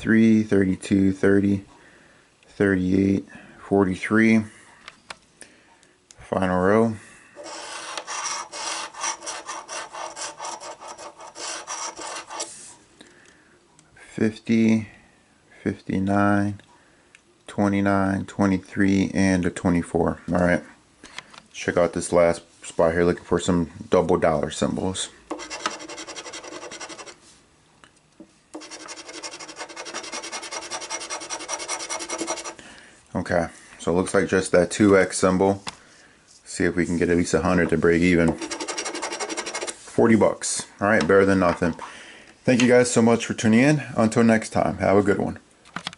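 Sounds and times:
coin scratching lottery ticket: 7.4 - 12.5, 25.3 - 27.2, 28.6 - 32.6, 38.4 - 39.8.

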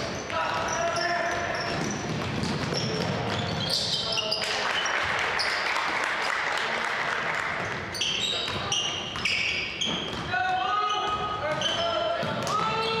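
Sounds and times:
basketball bouncing on court: 0.0 - 3.8, 7.5 - 10.4, 11.0 - 13.0
sneakers squeaking: 0.0 - 5.8, 7.5 - 13.0.

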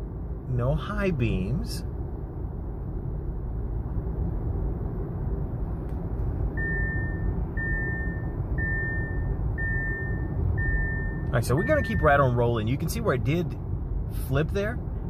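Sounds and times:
car road and engine rumble: 0.0 - 15.0
electronic chime beeps: 6.6 - 12.2.

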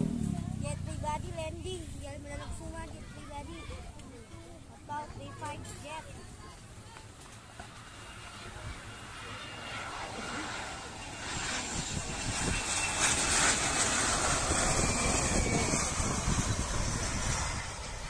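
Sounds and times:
jet engines rushing with high whine: 4.9 - 18.0.

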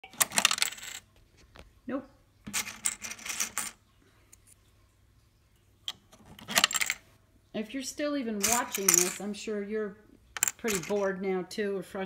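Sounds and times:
coins clattering into cash register: 0.0 - 1.1, 2.5 - 3.8, 6.4 - 7.0, 8.4 - 9.3, 10.4 - 11.1.

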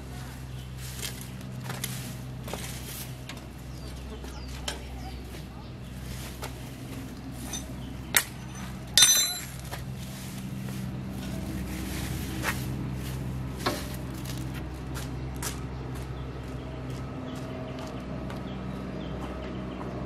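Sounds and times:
steady low hum: 0.0 - 20.0
metallic clink and ring: 8.4 - 9.6.

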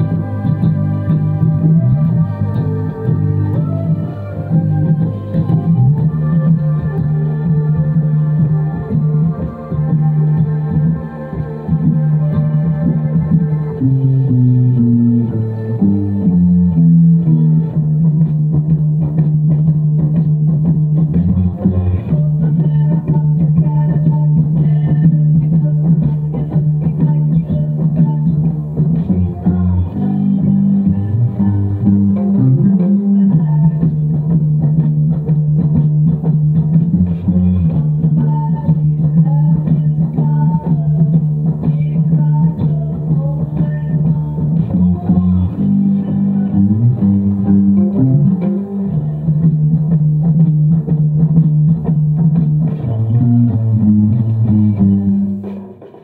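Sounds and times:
electric bass guitar low notes: 0.0 - 55.9
rock backing track: 0.0 - 56.0.

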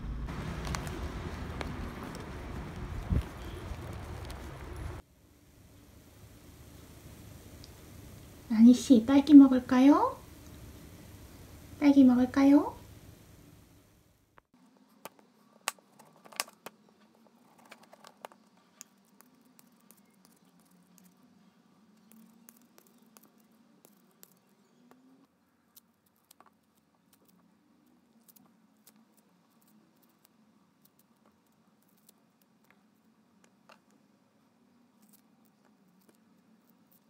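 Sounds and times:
faint low hum: 0.0 - 37.0
orange peel crackling and clicking: 17.6 - 32.8.

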